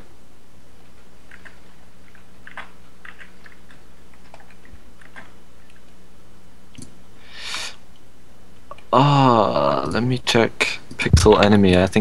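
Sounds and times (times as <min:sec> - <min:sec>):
low hum: 0:00.0 - 0:12.0
small clicks and ticks: 0:01.2 - 0:06.0.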